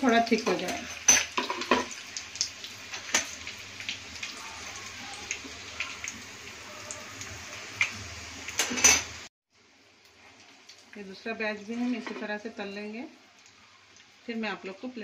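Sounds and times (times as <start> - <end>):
food deep-frying in hot oil: 0.0 - 15.0.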